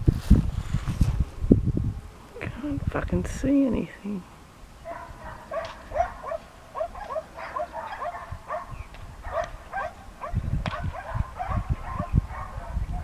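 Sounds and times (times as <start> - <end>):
dog barking: 4.8 - 13.0.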